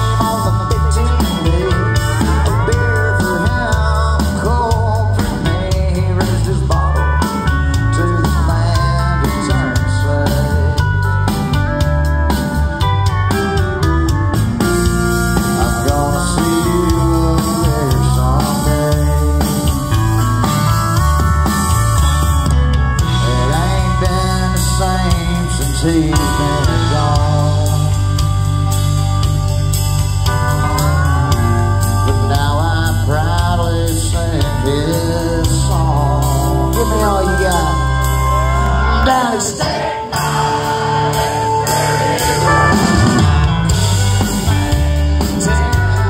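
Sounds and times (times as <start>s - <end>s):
country-rock band playing: 0.0s - 46.0s
drum kit: 0.0s - 46.0s
electric guitars: 0.0s - 46.0s
pedal steel guitar: 0.0s - 46.0s
drum hits: 41.6s - 45.5s.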